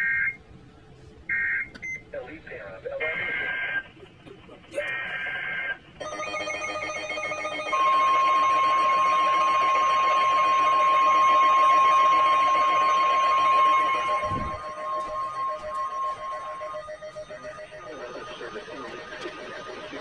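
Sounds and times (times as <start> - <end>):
steady radio warning tone: 7.7 - 20.0
warbling two-tone data bursts: 8.1 - 20.0.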